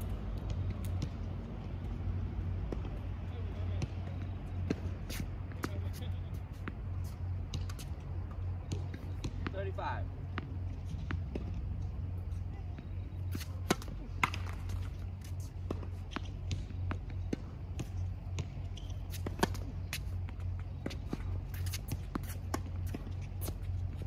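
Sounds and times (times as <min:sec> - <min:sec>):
steady low hum: 0:00.0 - 0:24.0
shoes scuffing on court: 0:03.7 - 0:12.5, 0:13.2 - 0:24.0
tennis ball bouncing: 0:04.6 - 0:09.5, 0:10.2 - 0:12.0, 0:13.3 - 0:24.0.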